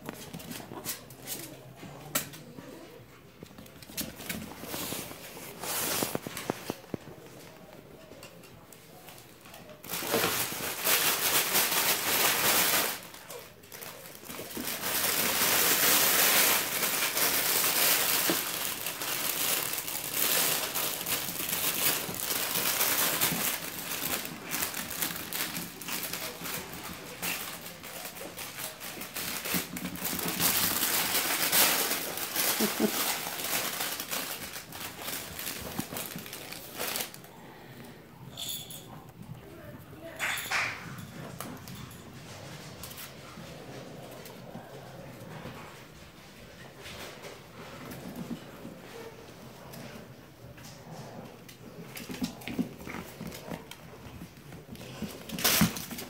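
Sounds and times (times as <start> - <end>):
fabric play tunnel rustling: 3.3 - 7.3, 9.8 - 37.3.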